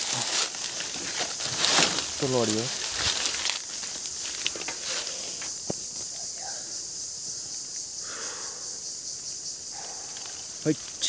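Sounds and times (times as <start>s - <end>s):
footsteps on dry leaves: 0.0s - 6.1s
high-pitched insect drone: 0.0s - 11.0s.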